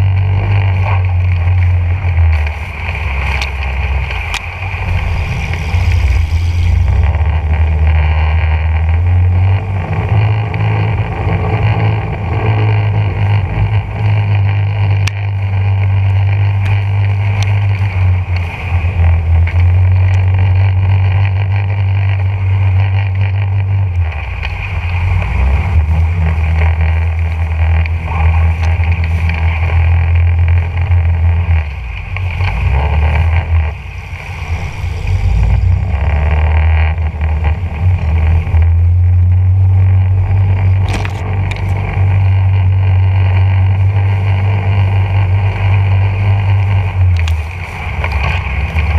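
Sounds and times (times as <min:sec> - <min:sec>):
small boat motor running: 0:00.0 - 0:48.9.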